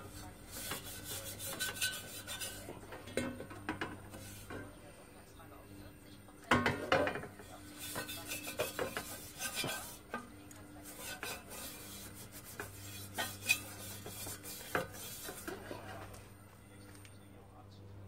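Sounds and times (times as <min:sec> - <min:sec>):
pad scraping inside copper pan: 0:00.0 - 0:02.8, 0:04.1 - 0:04.6, 0:07.0 - 0:16.1.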